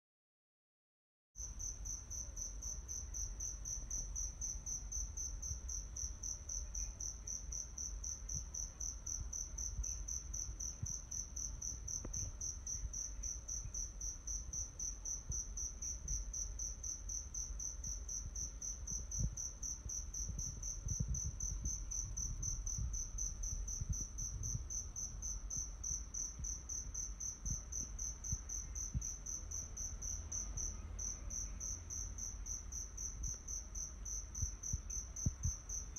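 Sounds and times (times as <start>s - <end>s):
low rumble: 19.1s - 25.7s.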